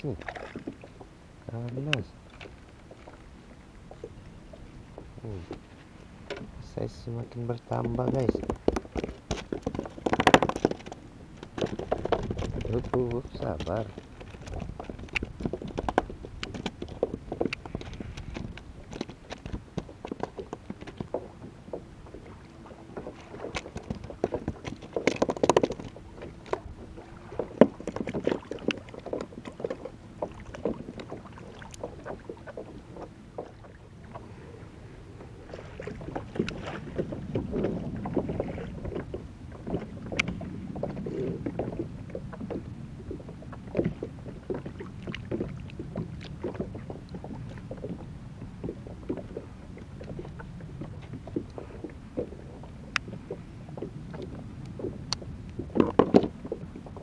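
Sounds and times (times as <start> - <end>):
water lapping against kayak hull: 0.0 - 57.0
small clicks and knocks: 7.7 - 21.3, 23.0 - 26.6.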